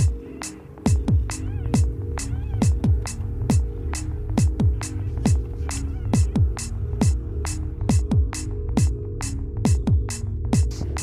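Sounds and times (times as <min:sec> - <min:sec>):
electronic music with beat: 0:00.0 - 0:11.0.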